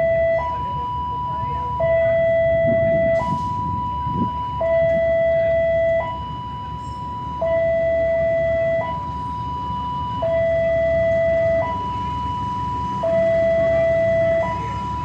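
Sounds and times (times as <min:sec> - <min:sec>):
two-tone warning siren: 0:00.0 - 0:15.0.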